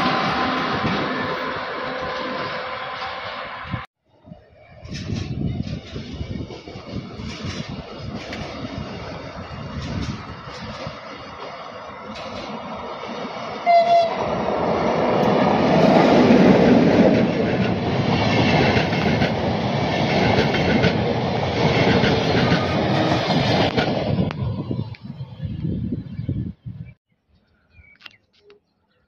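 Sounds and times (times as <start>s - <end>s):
train horn toot: 0.0s - 3.8s, 13.6s - 14.3s
train rolling roar: 0.0s - 26.4s
wheels clacking over rail joints: 4.8s - 24.4s.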